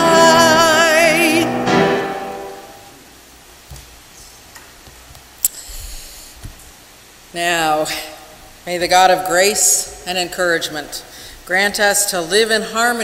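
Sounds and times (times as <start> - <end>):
chord ringing: 0.0 - 2.9
hymn singing with vibrato: 0.0 - 3.0.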